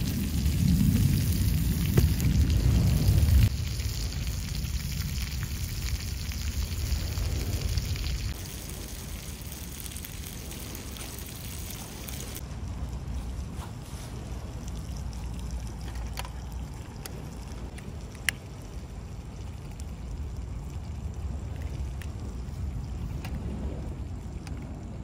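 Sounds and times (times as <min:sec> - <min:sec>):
wind rumble on microphone: 0:00.0 - 0:25.0.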